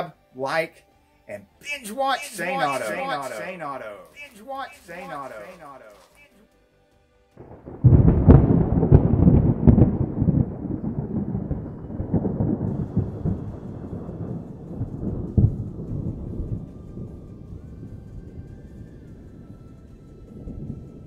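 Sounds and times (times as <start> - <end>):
loud boom: 7.4 - 14.4
low rumble with crackling: 7.4 - 21.0.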